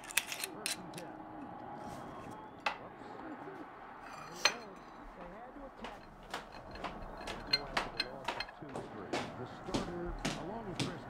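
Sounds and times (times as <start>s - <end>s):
glass clinking: 4.0s - 5.0s, 5.8s - 8.6s
glasses knocking: 4.1s - 11.0s.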